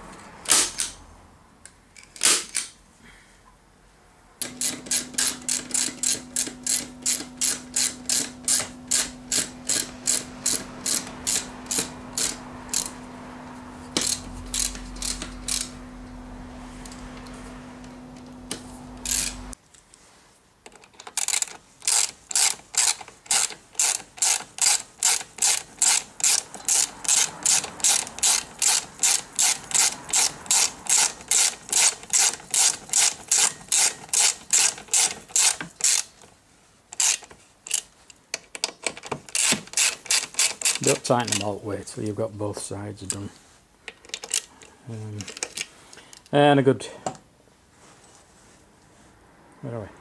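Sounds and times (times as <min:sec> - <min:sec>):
socket ratchet clicking: 0:04.4 - 0:13.0, 0:13.9 - 0:15.8, 0:19.0 - 0:19.5, 0:21.0 - 0:36.2, 0:37.0 - 0:41.4
steady hum: 0:04.4 - 0:19.6.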